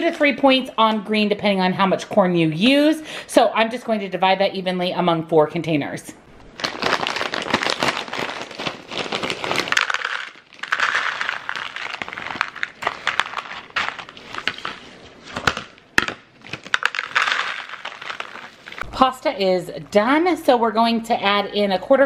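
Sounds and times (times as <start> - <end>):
plastic bag crinkling: 6.4 - 18.9
frozen corn rattling into containers: 6.6 - 18.8.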